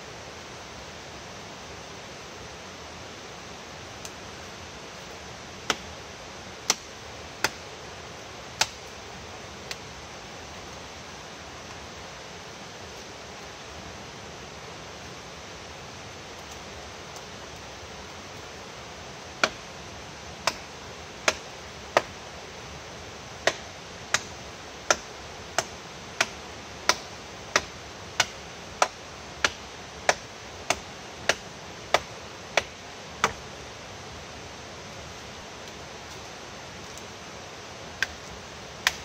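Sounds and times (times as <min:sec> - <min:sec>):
steady rushing hiss: 0:00.0 - 0:39.0
chopping wood: 0:05.6 - 0:05.9, 0:06.7 - 0:07.6, 0:08.6 - 0:08.8, 0:19.4 - 0:19.6, 0:20.4 - 0:22.2, 0:23.4 - 0:24.3, 0:24.9 - 0:33.4, 0:38.8 - 0:39.0.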